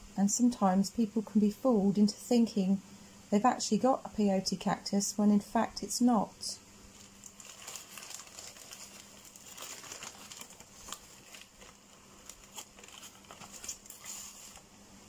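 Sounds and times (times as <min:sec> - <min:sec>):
paper crinkling: 0:06.9 - 0:14.7.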